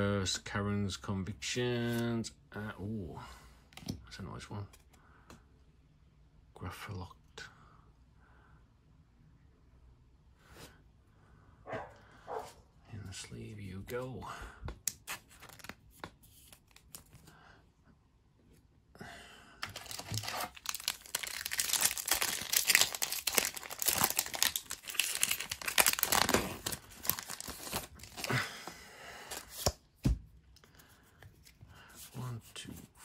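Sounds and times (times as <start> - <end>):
foil wrapper tearing and crinkling: 19.6 - 28.4.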